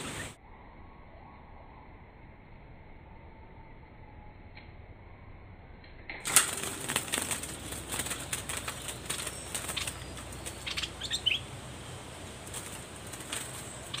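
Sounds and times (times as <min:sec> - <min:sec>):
bird wings beating against cage: 0:06.2 - 0:14.0
bird chirps: 0:07.2 - 0:14.0.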